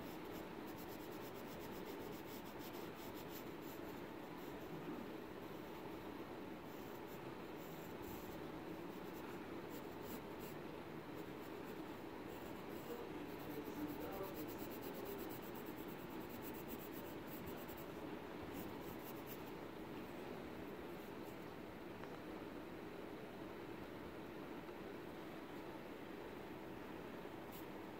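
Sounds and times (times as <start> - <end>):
pencil scratching on paper: 0.0 - 4.6, 6.7 - 10.6, 11.2 - 18.0, 18.6 - 19.5.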